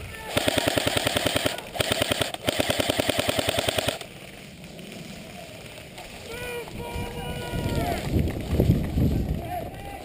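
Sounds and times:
airsoft rifle firing full auto: 0.3 - 4.1.

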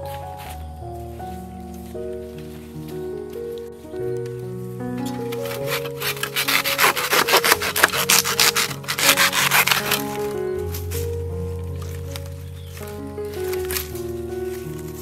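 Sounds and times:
background music: 0.0 - 15.0
hand saw cutting bamboo: 5.7 - 10.2.

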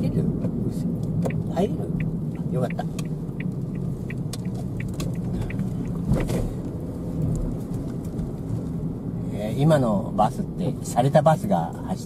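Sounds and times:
turn signal ticking: 0.0 - 9.1
car engine and road rumble: 0.0 - 12.0.

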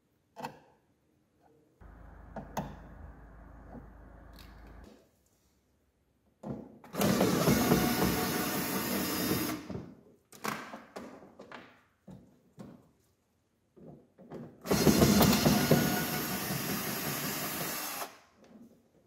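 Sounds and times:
cordless drill running: 7.0 - 9.6, 14.7 - 18.1.

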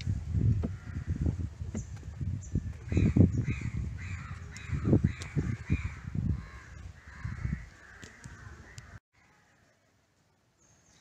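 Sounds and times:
thumps and rumble on microphone: 0.0 - 8.9
crows cawing: 2.9 - 9.7.

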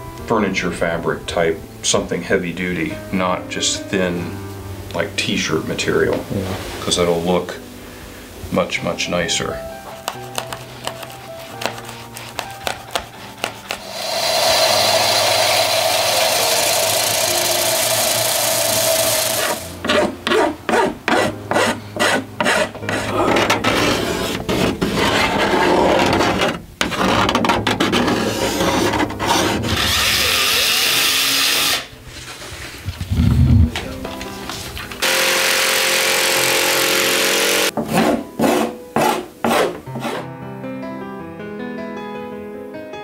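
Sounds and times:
hand tools rasping hardboard: 9.9 - 31.9, 35.0 - 40.2.

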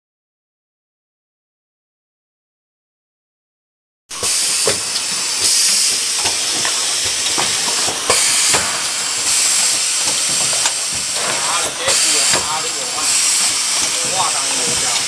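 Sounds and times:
compressed air hissing: 4.1 - 15.0.

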